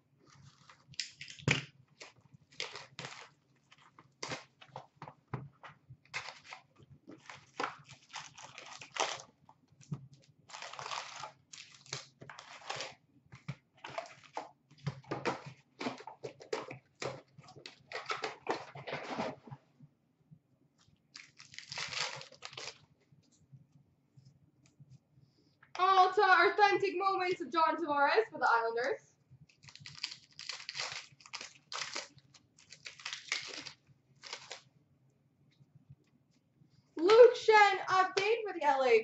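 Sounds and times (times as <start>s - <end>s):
foil wrappers crinkling: 0.3s - 4.9s, 6.1s - 13.0s, 21.1s - 22.9s, 29.5s - 34.7s
card packs torn open: 0.4s - 4.9s, 6.1s - 9.3s, 10.5s - 13.0s, 21.1s - 22.8s, 29.5s - 34.7s.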